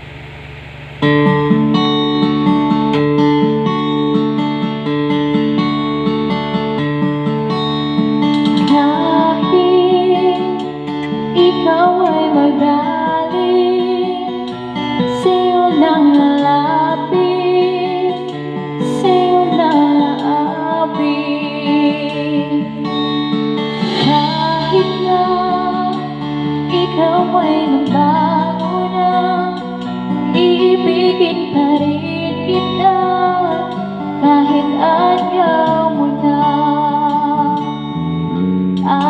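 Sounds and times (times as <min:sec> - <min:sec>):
pop ballad backing track with guitar: 0:01.0 - 0:39.0
woman singing with vibrato: 0:08.6 - 0:37.8, 0:38.8 - 0:39.0.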